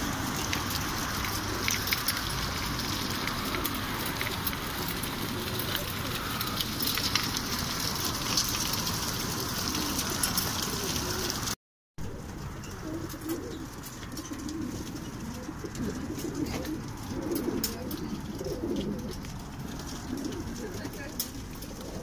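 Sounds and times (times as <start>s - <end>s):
pigeons cooing: 0.0s - 22.0s.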